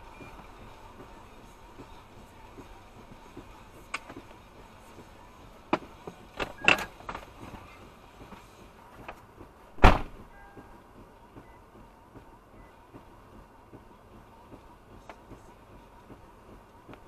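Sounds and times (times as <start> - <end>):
vehicle knocks and clunks: 1.8 - 17.0
heavy thump: 9.8 - 10.3.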